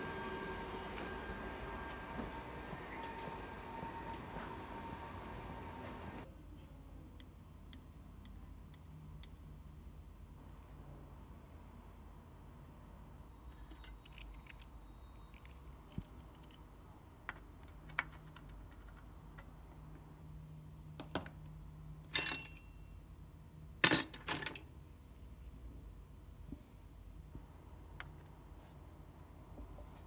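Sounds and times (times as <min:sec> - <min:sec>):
small metal nozzles clinking: 0:13.5 - 0:16.8, 0:21.1 - 0:22.8.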